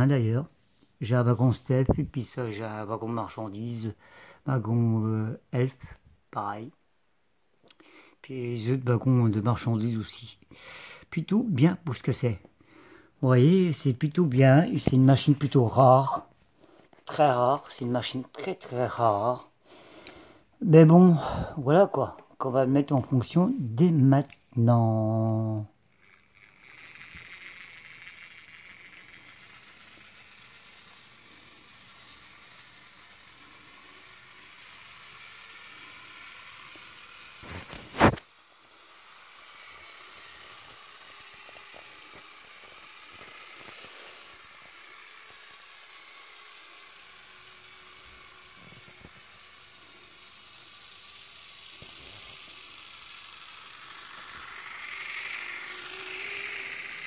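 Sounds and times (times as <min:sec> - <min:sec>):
model train motor whirring: 0:16.8 - 0:20.4, 0:24.9 - 0:57.0.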